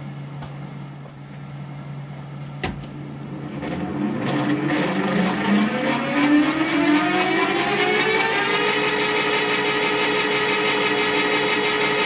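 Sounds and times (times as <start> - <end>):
lathe switch click: 2.6 - 3.0
lathe spinning up whine: 3.0 - 12.0.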